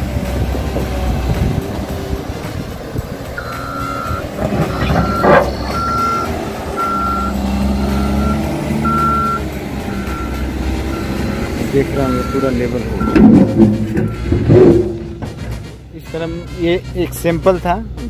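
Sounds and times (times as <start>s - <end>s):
loader engine running: 0.0s - 18.0s
reverse alarm beeping: 3.4s - 13.4s.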